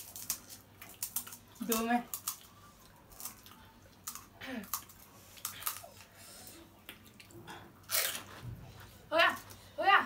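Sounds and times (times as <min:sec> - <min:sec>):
crisp shells cracking: 0:00.0 - 0:06.0.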